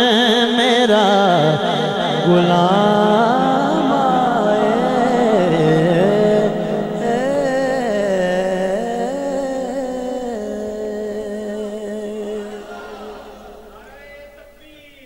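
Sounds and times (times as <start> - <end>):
man singing into a microphone: 0.0 - 15.0.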